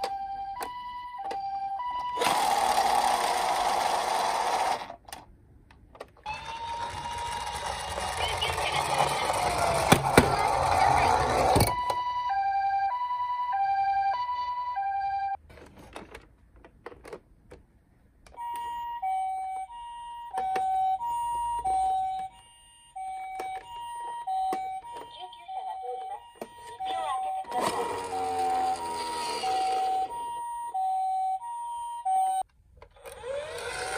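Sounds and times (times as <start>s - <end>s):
toy two-tone siren: 0.0s - 4.8s, 6.2s - 15.4s, 18.4s - 32.5s
toy motor whirring: 2.2s - 5.0s, 6.3s - 11.6s, 27.3s - 30.1s, 33.0s - 33.9s.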